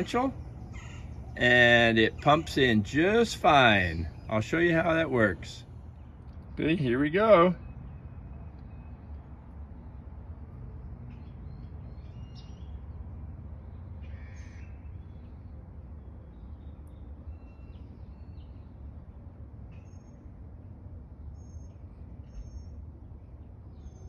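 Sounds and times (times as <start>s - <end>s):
short bird calls: 0.0s - 5.4s
steady low rumble: 0.0s - 11.2s.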